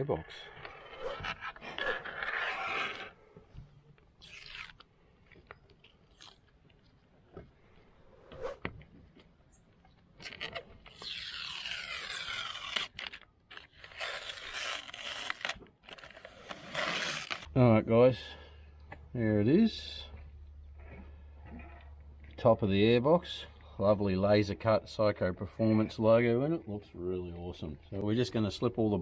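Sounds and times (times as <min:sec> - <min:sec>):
paper backing peeling and crackling: 0:10.2 - 0:17.5.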